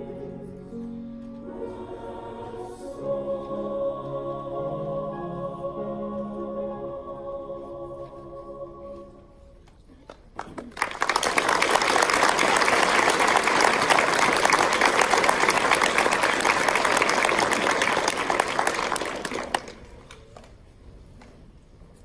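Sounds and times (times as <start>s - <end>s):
audience applauding: 10.4s - 20.4s.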